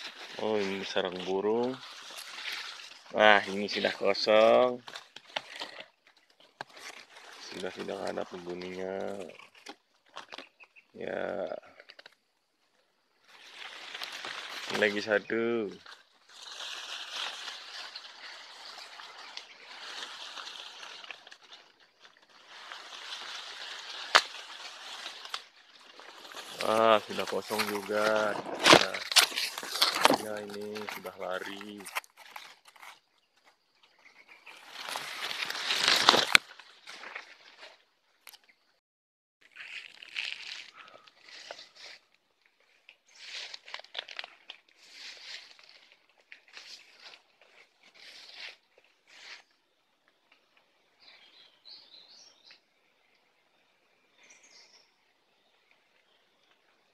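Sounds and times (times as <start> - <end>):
bamboo leaves rustling and scraping: 0.0 - 38.7, 39.4 - 56.9.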